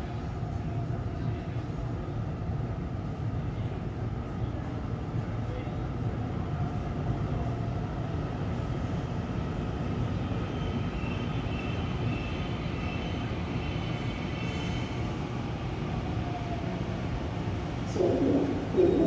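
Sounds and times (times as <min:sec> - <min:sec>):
electric train low drone: 0:05.9 - 0:19.0.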